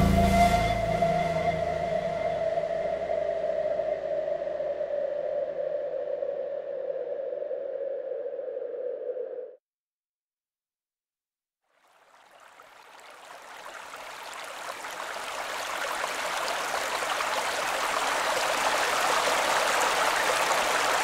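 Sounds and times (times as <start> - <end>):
synthesized rushing water texture: 11.8 - 21.0.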